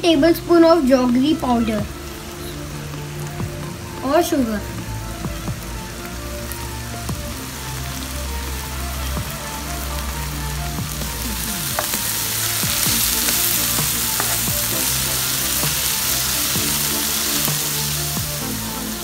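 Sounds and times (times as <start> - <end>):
background music: 0.0 - 19.0
masala sizzling in a frying pan: 0.0 - 19.0
wooden spoon scraping a pan: 11.5 - 17.2.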